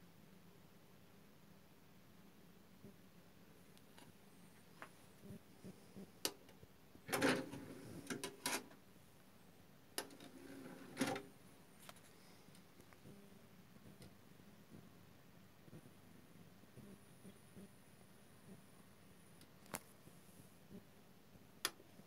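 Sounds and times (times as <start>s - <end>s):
disc tray whirring and clattering: 7.0s - 8.7s, 10.0s - 11.3s
tray closing whir and clunk: 7.1s - 8.7s, 10.1s - 11.3s.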